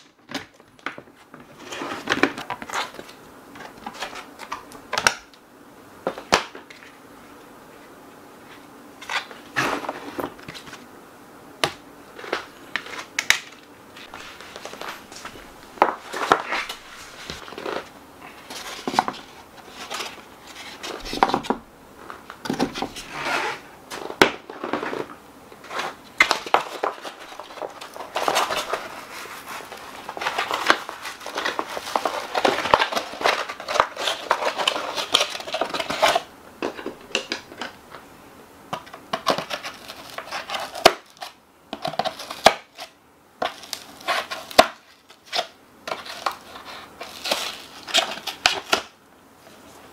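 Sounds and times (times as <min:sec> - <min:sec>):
cardboard rustling and scraping: 0:00.8 - 0:05.0, 0:07.7 - 0:10.9, 0:12.1 - 0:37.8, 0:38.8 - 0:49.9.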